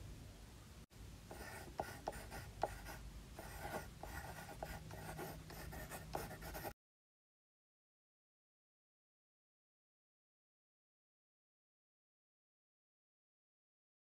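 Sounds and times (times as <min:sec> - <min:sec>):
pen scratching while writing: 0:01.3 - 0:06.8.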